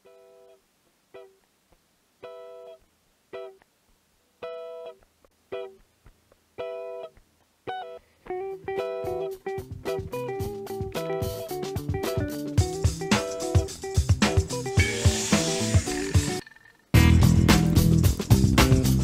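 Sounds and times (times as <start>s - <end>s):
plucked guitar notes: 4.4s - 19.0s.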